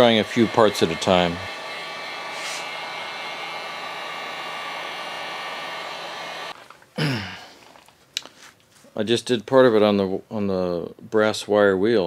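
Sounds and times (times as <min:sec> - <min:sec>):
heat gun blowing: 0:00.0 - 0:07.2.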